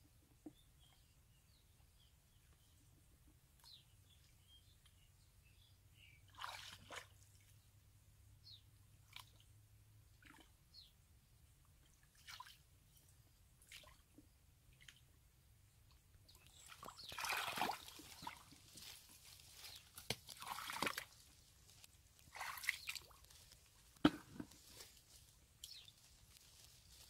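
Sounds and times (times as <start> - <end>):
footsteps squelching in mud: 16.8 - 27.0
hands squelching in mud: 17.1 - 23.7.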